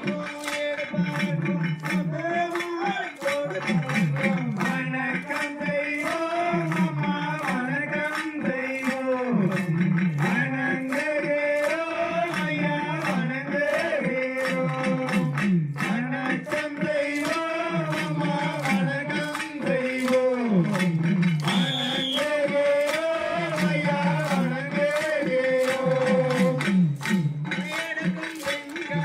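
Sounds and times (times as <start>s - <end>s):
man singing: 0.0s - 29.0s
steady drum beat: 0.0s - 29.0s.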